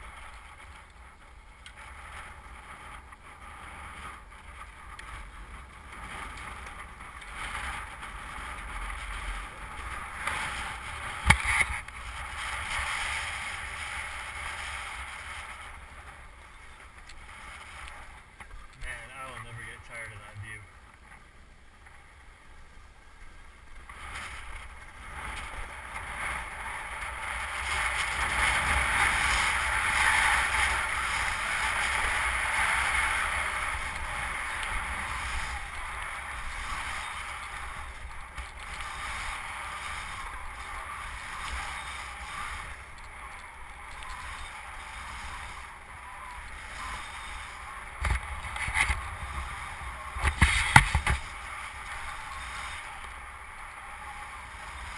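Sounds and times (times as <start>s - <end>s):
skis scraping over snow: 0.0s - 54.9s
wind rumble on microphone: 0.0s - 54.9s.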